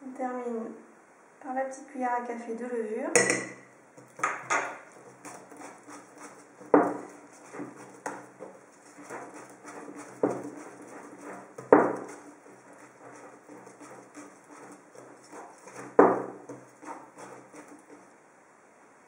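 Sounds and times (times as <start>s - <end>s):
whisk knocking against bowl: 3.2s - 18.1s
whisk churning thick batter: 3.9s - 18.2s.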